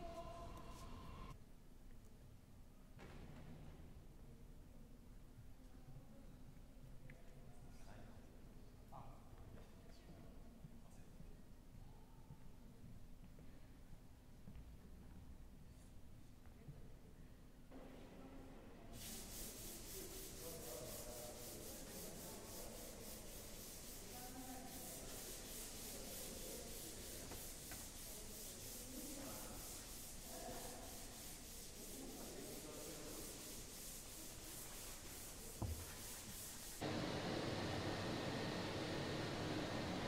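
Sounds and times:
hand sanding a wall: 0:19.0 - 0:36.9.

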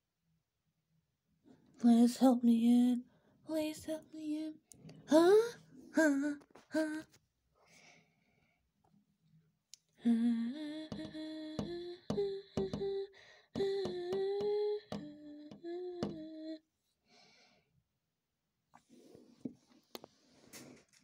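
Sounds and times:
person humming a tune: 0:10.0 - 0:16.6.

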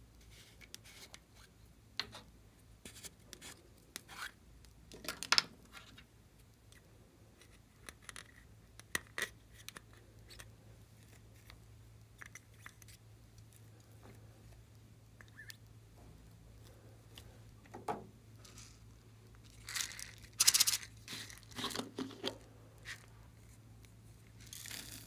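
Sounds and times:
plastic spatula scraping: 0:19.9 - 0:23.6.

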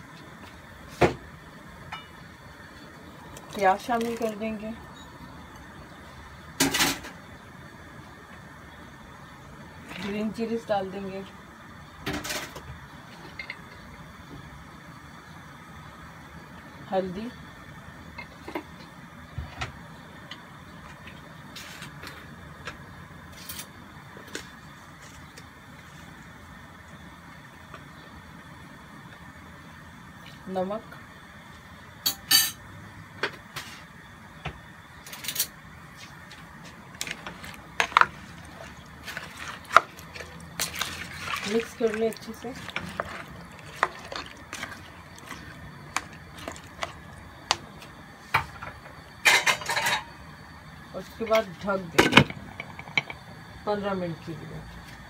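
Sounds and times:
steady low hum: 0:00.0 - 0:55.0
water sloshing in pot: 0:03.1 - 0:04.6, 0:36.0 - 0:48.1.

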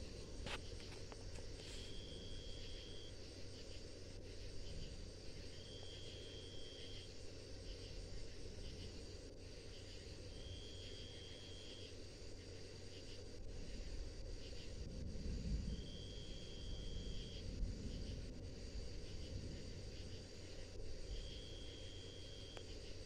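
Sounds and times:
steady low background noise: 0:00.0 - 0:23.0
soft short insect chirps: 0:00.5 - 0:03.8
insect high even buzz: 0:21.1 - 0:22.8.

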